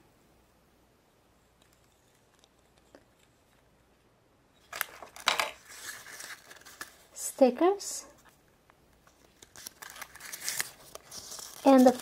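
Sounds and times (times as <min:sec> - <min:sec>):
packaging crinkling and tearing: 0:04.6 - 0:07.1, 0:09.1 - 0:12.0.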